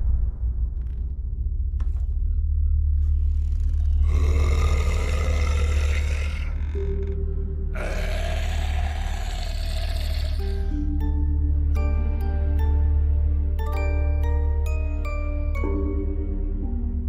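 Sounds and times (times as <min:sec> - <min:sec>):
deep rumbling drone: 0:00.0 - 0:11.6.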